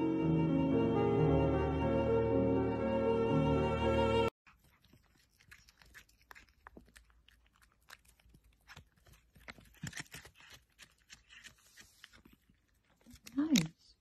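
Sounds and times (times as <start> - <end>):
cat chewing and crunching: 4.4 - 14.0.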